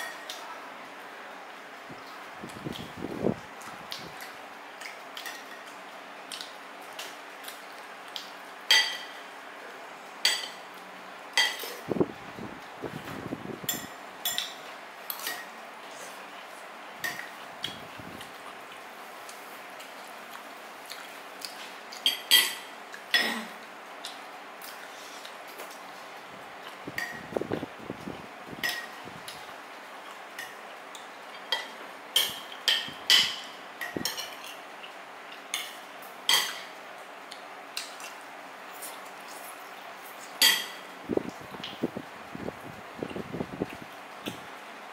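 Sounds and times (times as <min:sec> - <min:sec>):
cutlery clinking on dishes: 0:08.7 - 0:09.2, 0:10.2 - 0:10.6, 0:11.4 - 0:11.8, 0:13.7 - 0:15.5, 0:22.0 - 0:23.4, 0:31.4 - 0:34.6, 0:35.5 - 0:36.7, 0:40.4 - 0:40.8.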